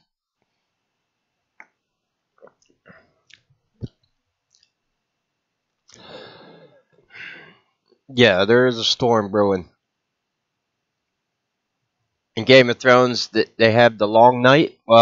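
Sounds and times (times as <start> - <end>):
person breathing: 5.9 - 7.7
person speaking: 8.1 - 9.7, 12.4 - 15.0.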